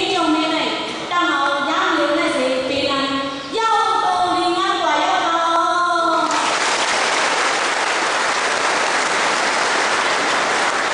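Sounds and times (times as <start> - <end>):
audience applauding: 6.2 - 10.9.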